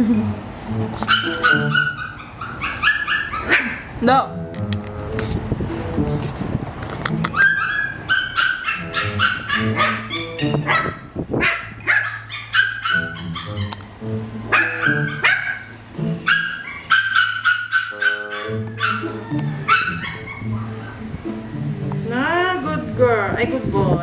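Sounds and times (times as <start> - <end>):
background music: 0.0 - 2.2, 4.0 - 7.6, 12.7 - 24.0
puppies yipping and barking: 0.9 - 4.0, 7.2 - 21.4.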